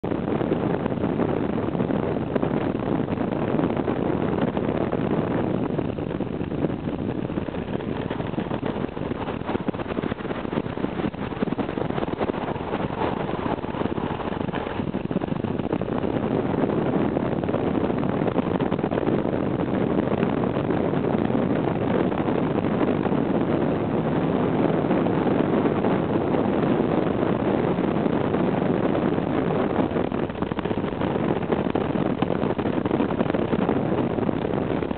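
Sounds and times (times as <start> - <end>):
wind rush: 0.0 - 34.9
engine and road drone: 3.2 - 27.0.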